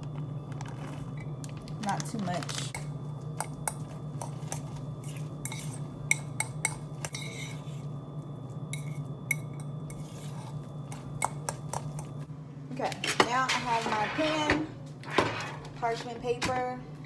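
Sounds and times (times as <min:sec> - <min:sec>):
steady low hum: 0:00.0 - 0:17.0
metal utensil scraping ceramic bowl: 0:03.6 - 0:07.9, 0:08.7 - 0:12.1.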